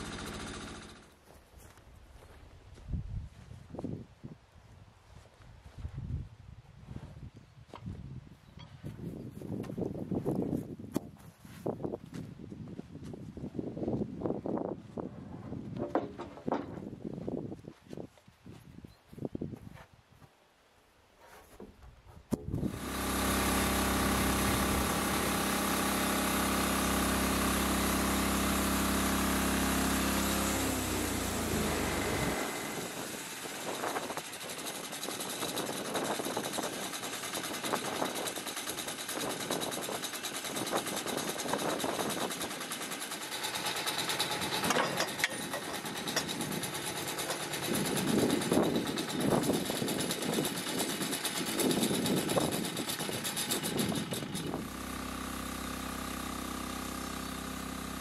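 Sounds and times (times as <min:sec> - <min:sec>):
diesel engine running: 0:00.0 - 0:01.1, 0:22.6 - 0:58.0
knocks and rattles: 0:15.7 - 0:17.0, 0:33.7 - 0:54.6.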